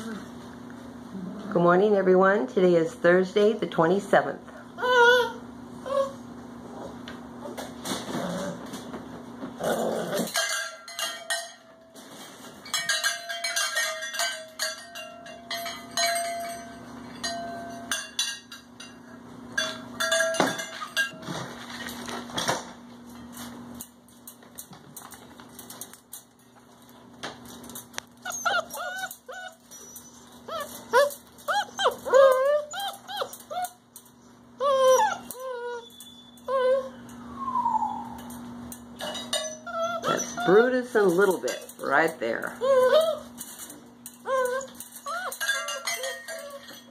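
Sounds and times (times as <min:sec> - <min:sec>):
puppies yipping and whining: 0:04.8 - 0:08.7, 0:28.1 - 0:41.3, 0:42.6 - 0:46.9.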